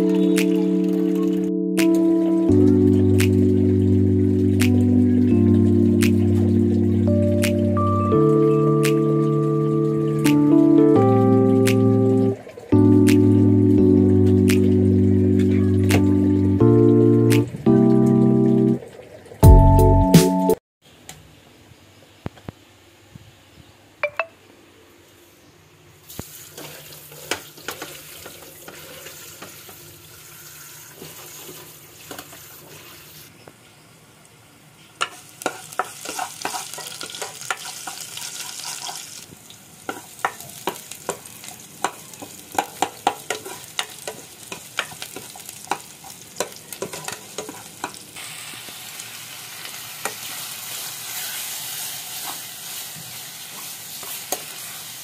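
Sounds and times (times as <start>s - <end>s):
meat frying in oil: 26.1s - 33.4s, 34.2s - 55.0s
wooden spoon scraping pan: 35.5s - 39.0s.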